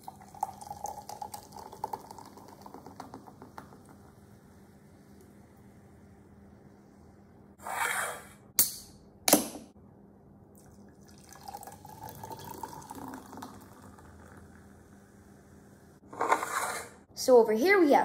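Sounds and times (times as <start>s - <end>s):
soda pouring into a glass: 0.0s - 3.8s, 10.6s - 14.7s.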